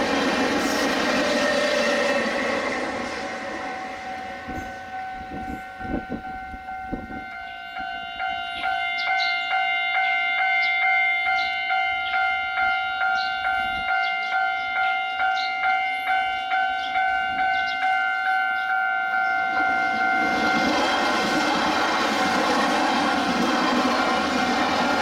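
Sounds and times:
train running noise: 0.0 - 9.1, 11.2 - 25.0
level crossing bell ringing: 3.7 - 21.4.

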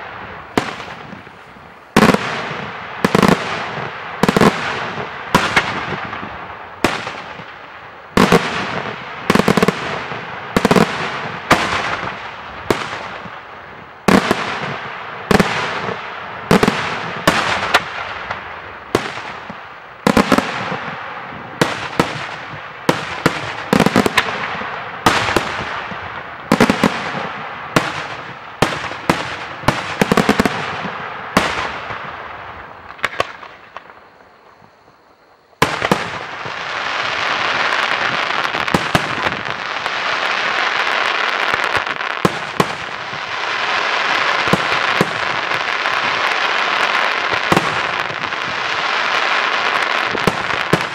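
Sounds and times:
fireworks bangs with echo: 0.0 - 50.9.

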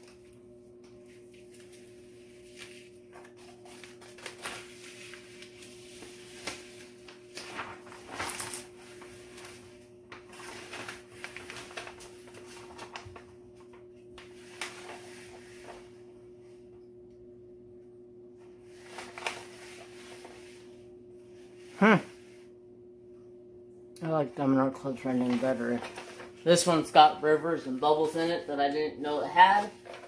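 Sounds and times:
steady low hum: 0.0 - 30.0
plastic film crinkling and rustling: 0.9 - 16.0, 18.6 - 20.7, 24.8 - 30.0.

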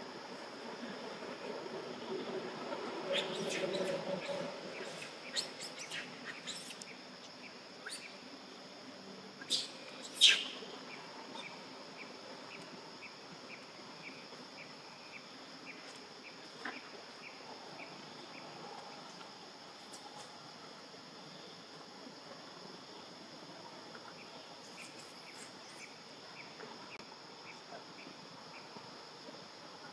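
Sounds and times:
high insect drone: 0.0 - 29.9
sharp high bird calls: 9.4 - 10.6.

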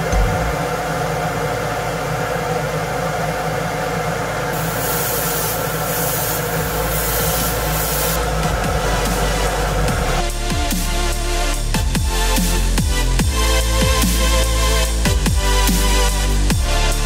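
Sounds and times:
extractor fan drone: 0.0 - 17.0
airbrush spraying hiss: 4.6 - 16.5.

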